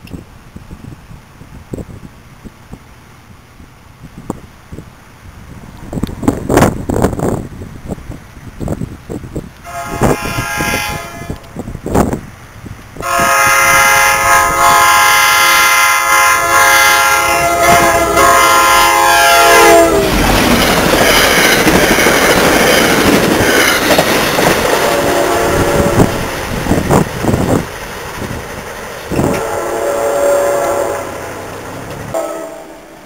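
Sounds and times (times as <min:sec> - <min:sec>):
locomotive air horn blast: 0:09.6 - 0:11.6, 0:13.0 - 0:20.3, 0:24.8 - 0:26.3, 0:29.1 - 0:31.2, 0:32.1 - 0:33.0
train wheel clatter: 0:19.7 - 0:29.8, 0:31.2 - 0:32.2.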